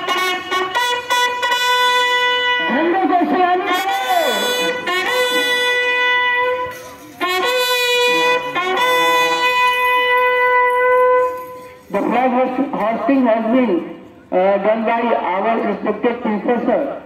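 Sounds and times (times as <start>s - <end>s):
bugle call: 0.0s - 12.1s.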